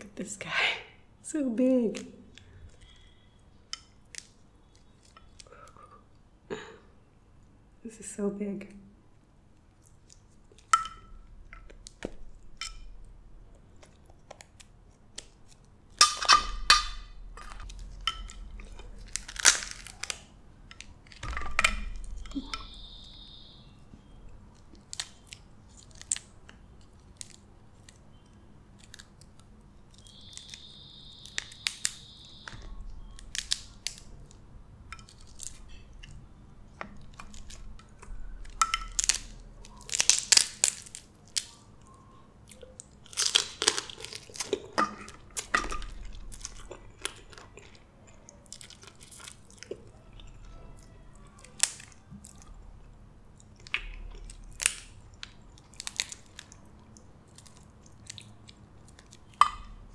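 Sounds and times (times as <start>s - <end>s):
crab shell cracking: 13.8s - 23.6s, 24.6s - 36.2s, 36.8s - 41.7s, 42.5s - 50.6s, 51.3s - 52.5s, 53.3s - 59.9s
close chewing: 41.0s - 59.4s.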